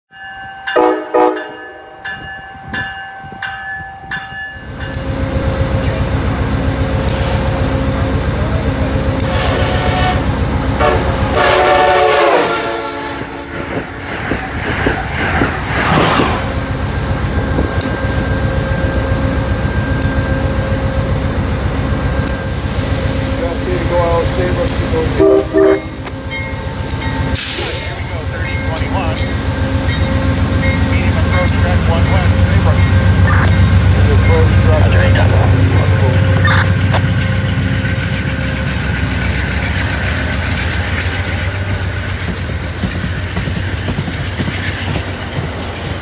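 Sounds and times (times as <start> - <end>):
diesel locomotive throbbing: 0.2 - 46.0
train horn: 0.7 - 2.0, 9.2 - 13.8, 25.0 - 26.1.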